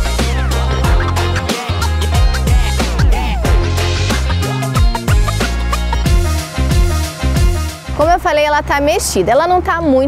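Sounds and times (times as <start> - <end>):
electronic beat with bass drum: 0.0 - 8.2
sustained synth tones: 0.6 - 7.0.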